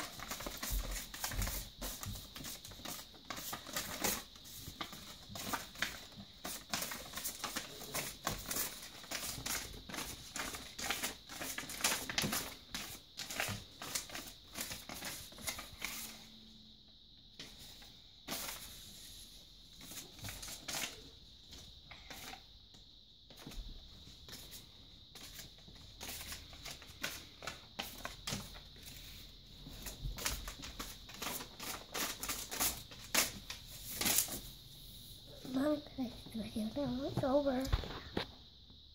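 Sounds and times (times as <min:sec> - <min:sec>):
paper rustling: 0:00.0 - 0:16.3, 0:17.4 - 0:19.1, 0:19.8 - 0:21.0, 0:24.3 - 0:34.5.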